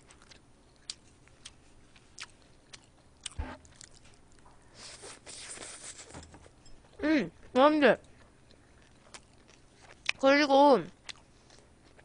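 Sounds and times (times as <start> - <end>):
chewing and lip smacks: 0.0 - 4.5.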